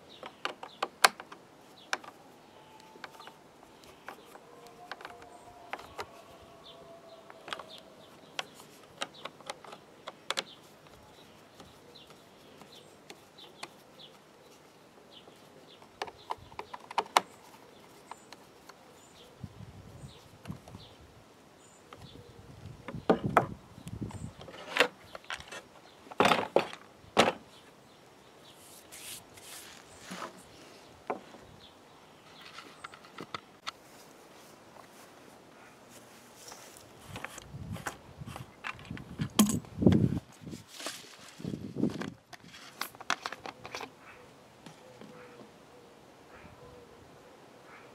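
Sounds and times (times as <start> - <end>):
plastic parts clicking and knocking: 0.1 - 2.2, 3.0 - 6.1, 7.3 - 11.0, 15.8 - 17.4, 37.2 - 40.0, 41.9 - 43.9.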